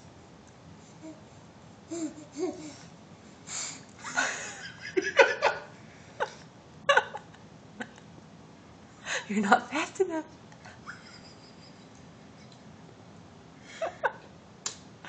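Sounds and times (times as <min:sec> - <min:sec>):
person laughing: 0:04.0 - 0:08.1, 0:10.7 - 0:12.0, 0:13.7 - 0:14.2.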